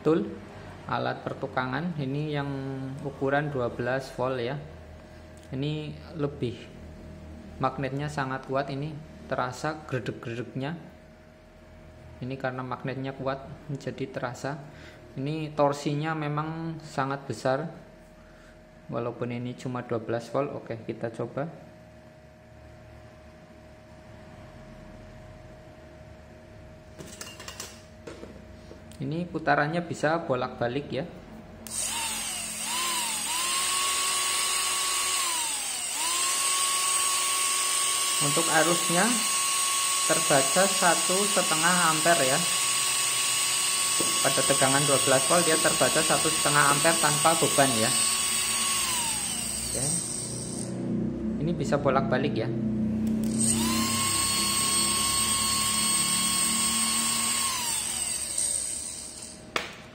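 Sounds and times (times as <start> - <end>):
electric motor whining: 31.6 - 50.8, 53.0 - 59.4.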